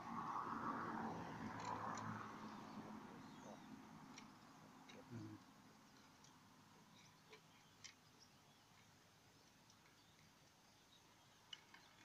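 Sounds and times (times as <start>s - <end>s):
faint clicks: 8.7s - 10.6s.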